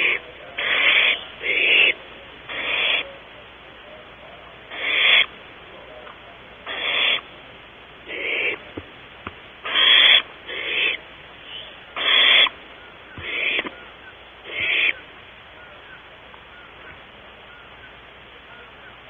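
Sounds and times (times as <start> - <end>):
owls hissing screech calls: 0.0 - 3.2, 4.7 - 5.4, 6.6 - 7.3, 8.0 - 8.7, 9.6 - 19.0.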